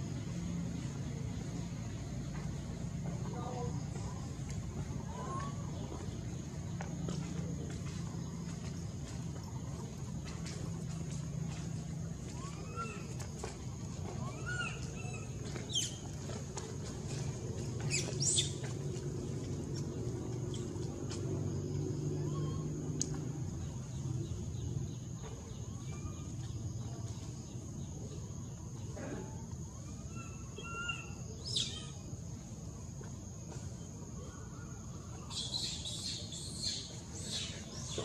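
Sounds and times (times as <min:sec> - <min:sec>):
steady low hum: 0:00.0 - 0:38.0.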